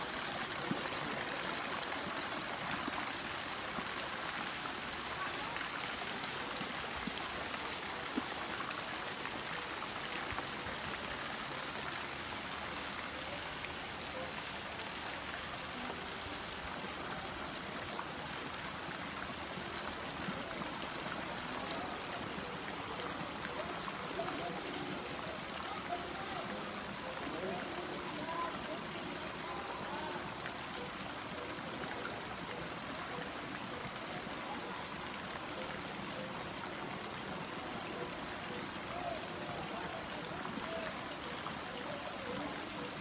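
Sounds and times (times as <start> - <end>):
water spray splashing on pool: 0.0 - 43.0.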